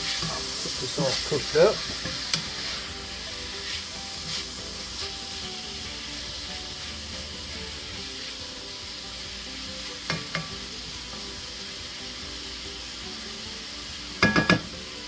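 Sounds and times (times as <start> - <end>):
food sizzling in a skillet: 0.0 - 15.0
wooden spatula knocking pan: 14.2 - 14.7.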